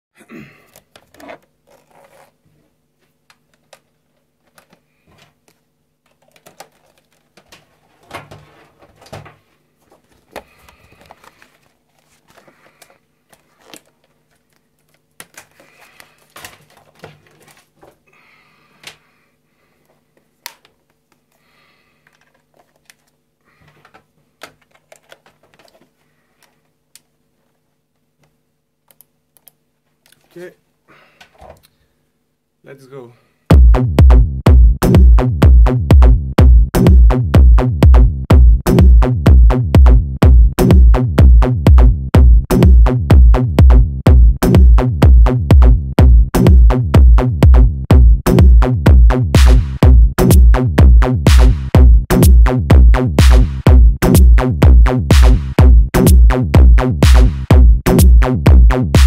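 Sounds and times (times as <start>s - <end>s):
faint steady hum: 0.2s - 33.5s.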